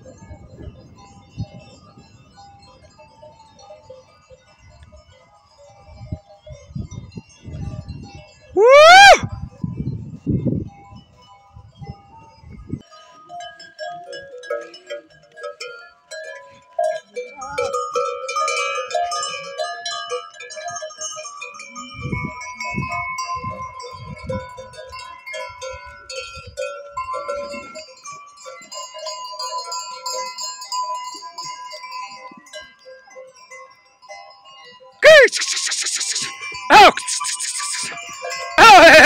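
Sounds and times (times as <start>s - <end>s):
goat neck bells ringing: 0.0s - 39.0s
goat bleating: 38.6s - 39.0s.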